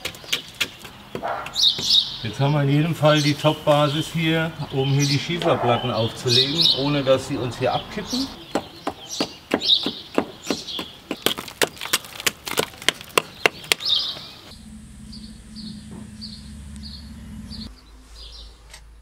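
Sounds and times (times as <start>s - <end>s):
bird chirping: 0.0s - 12.1s, 13.2s - 18.5s
low steady hum: 14.5s - 17.8s.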